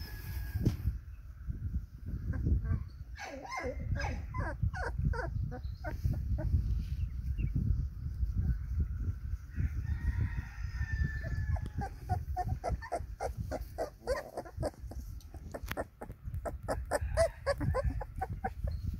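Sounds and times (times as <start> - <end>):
low microphone rumble: 0.0 - 18.9
rooster crowing: 9.5 - 12.0, 16.9 - 18.1.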